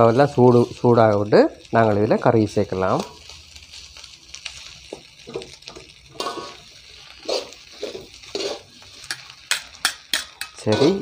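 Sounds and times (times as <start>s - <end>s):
food sizzling in a wok: 0.0s - 11.0s
metal spatulas scraping: 6.2s - 6.6s, 7.2s - 11.0s.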